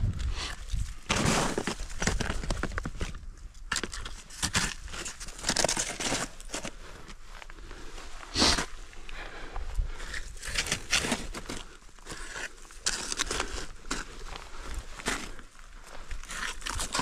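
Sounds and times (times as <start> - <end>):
snowshoes crunching on snow: 0.9 - 3.0.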